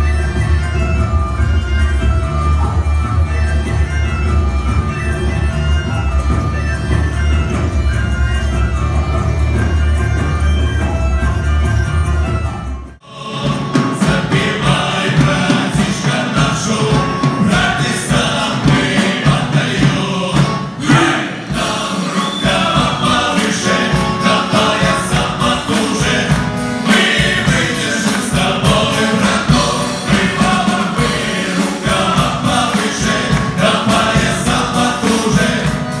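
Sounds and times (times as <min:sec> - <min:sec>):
button accordion: 0:00.0 - 0:36.0
male vocal ensemble singing: 0:13.0 - 0:36.0
steady beat: 0:13.4 - 0:36.0.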